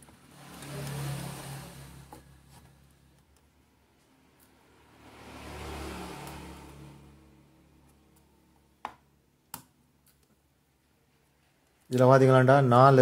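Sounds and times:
vehicle passing: 0:00.0 - 0:03.1, 0:04.1 - 0:08.5.

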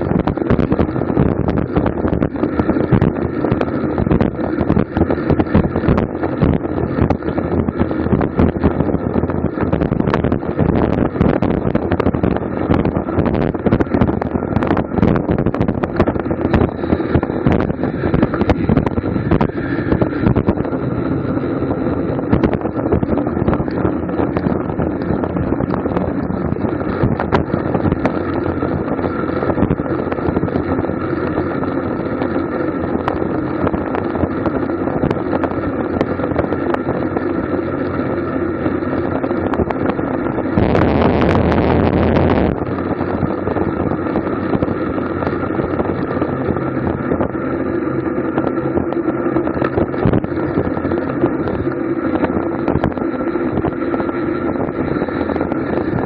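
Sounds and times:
road noise: 0:00.0 - 0:56.0
wind rushing over microphone: 0:00.0 - 0:56.0.

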